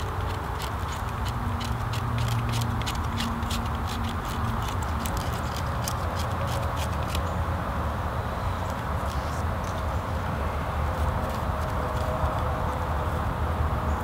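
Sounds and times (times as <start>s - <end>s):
knife scraping bark: 0.0s - 7.4s, 8.4s - 10.0s.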